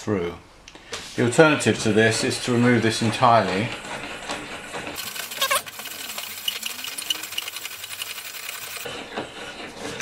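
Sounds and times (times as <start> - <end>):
threaded rod clicking rattle: 5.0 - 8.9
faint squeak: 5.2 - 5.7.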